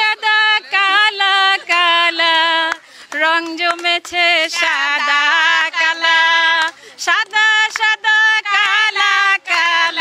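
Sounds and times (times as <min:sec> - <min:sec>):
woman singing unaccompanied: 0:00.0 - 0:10.0.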